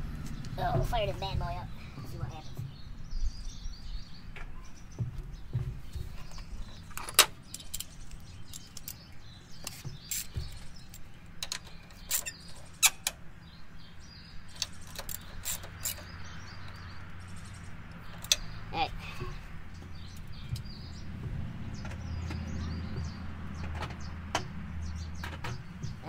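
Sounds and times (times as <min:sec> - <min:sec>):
birds chirping: 0:00.0 - 0:26.0
ratchet clicking: 0:07.0 - 0:13.2, 0:14.5 - 0:16.1.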